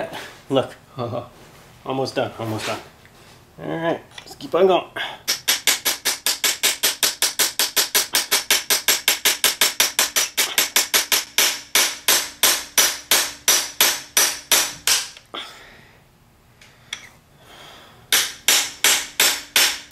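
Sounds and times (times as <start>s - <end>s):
hammer striking metal punch: 5.3s - 15.2s, 18.1s - 19.9s.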